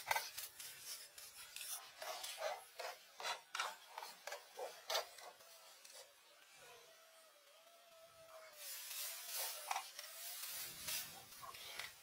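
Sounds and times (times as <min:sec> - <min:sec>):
rasping scrapes on wood: 0:00.6 - 0:05.4.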